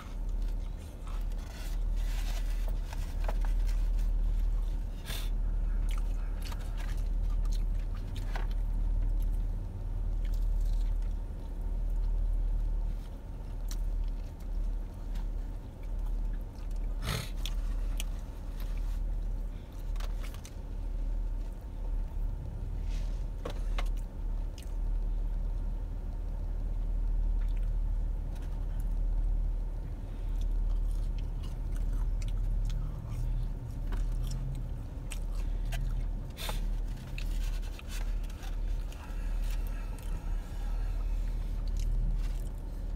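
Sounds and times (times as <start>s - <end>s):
clicks and rustles of food: 0.0s - 4.9s
quiet chewing: 0.0s - 22.1s, 23.8s - 42.9s
car idling rumble: 0.0s - 42.9s.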